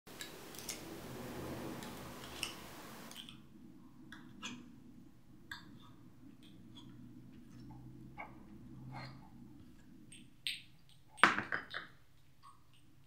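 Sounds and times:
soft hiss: 0.1 - 3.2.

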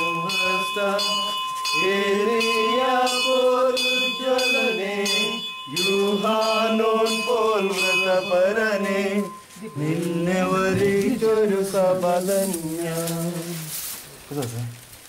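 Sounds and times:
man chanting a hymn: 0.0 - 14.8.

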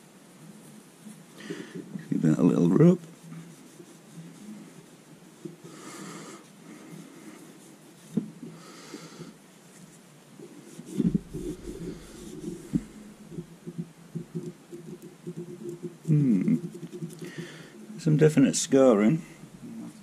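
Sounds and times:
cloth rubbing metal: 1.0 - 8.6, 9.7 - 19.2
soft knocks and handling: 7.0 - 8.6, 9.7 - 17.2.

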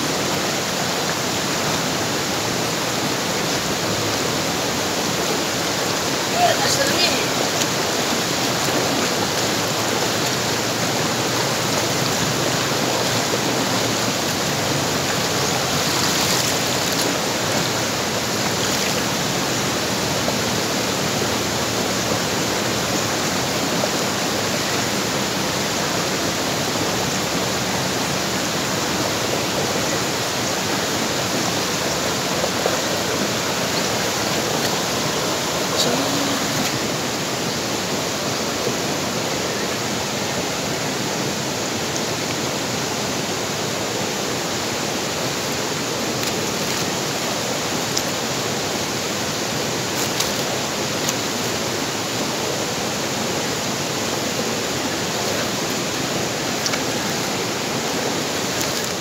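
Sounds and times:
stream rushing over rocks: 0.0 - 59.0.

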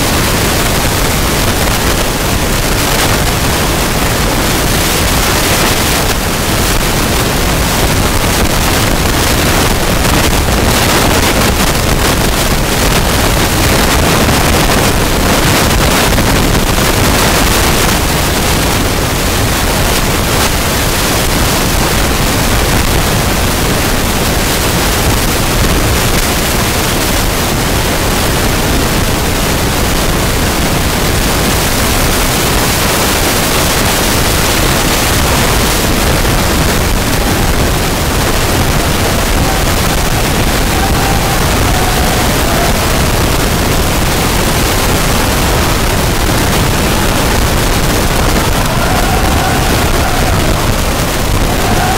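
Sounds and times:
wind buffeting microphone: 32.6 - 51.9
crowd cheering and applauding: 34.0 - 51.9.

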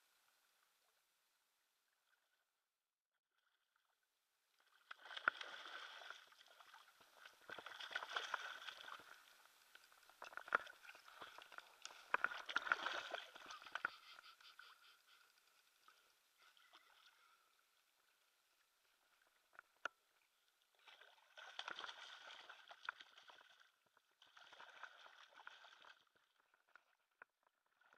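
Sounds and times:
fish thrashing and splashing: 4.7 - 14.3, 20.8 - 26.7.

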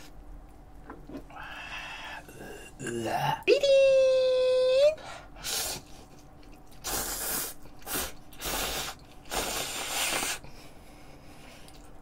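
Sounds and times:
person slurping noodles: 6.8 - 10.4.

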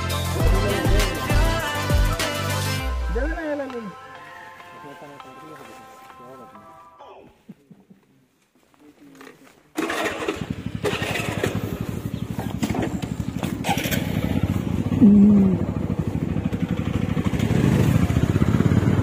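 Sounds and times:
motorcycle engine running: 0.3 - 1.8, 9.7 - 19.0.

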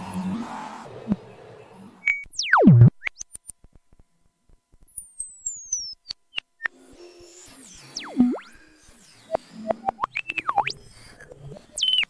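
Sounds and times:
synthesizer blips and sweeps: 2.4 - 3.1, 7.6 - 8.6.

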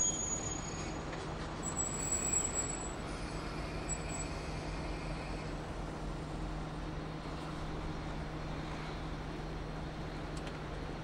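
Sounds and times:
high brake squeal: 0.0 - 4.4.

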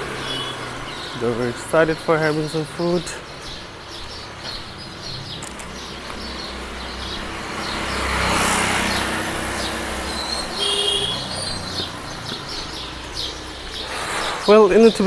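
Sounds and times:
vehicle passing on wet street: 0.0 - 3.2, 4.3 - 14.4
birds chirping: 0.0 - 15.0.

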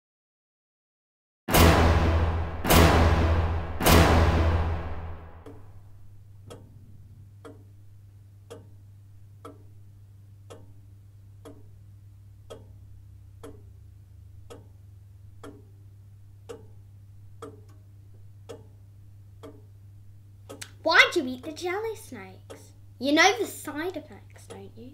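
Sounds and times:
clock ticking: 1.5 - 24.9
low steady hum: 1.5 - 24.9.

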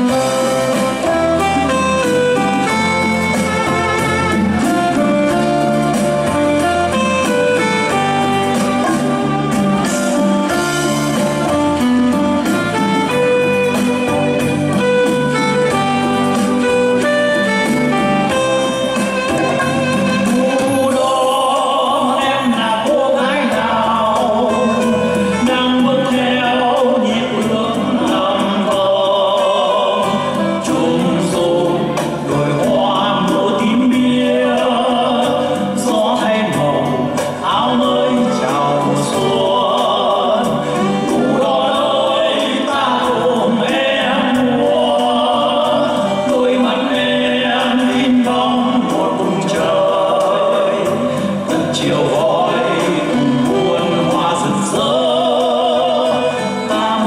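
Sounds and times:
instrumental accompaniment: 0.0 - 57.0
man singing into a microphone: 15.4 - 57.0.

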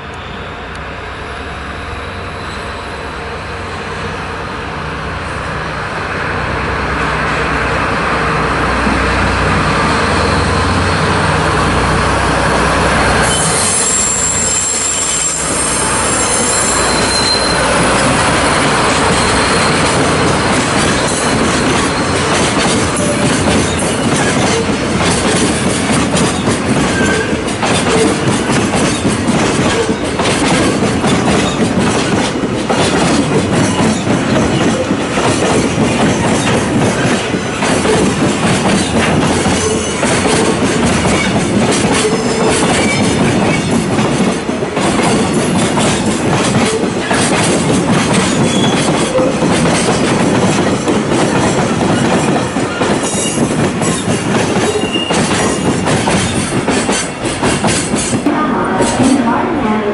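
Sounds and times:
train wheels rumbling on rails: 0.0 - 59.9
faint wheel squeals: 13.3 - 17.8.

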